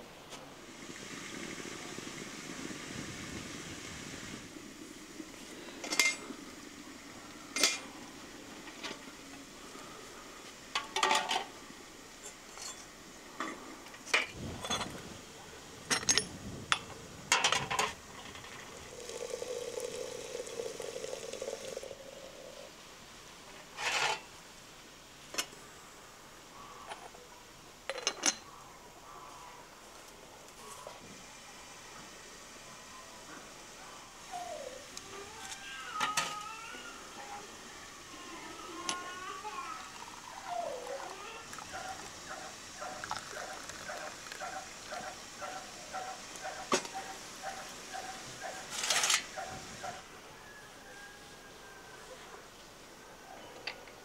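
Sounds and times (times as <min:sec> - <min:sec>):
cookware and utensils clinking: 0:05.8 - 0:06.3, 0:07.6 - 0:07.9, 0:10.8 - 0:11.5, 0:27.9 - 0:28.5.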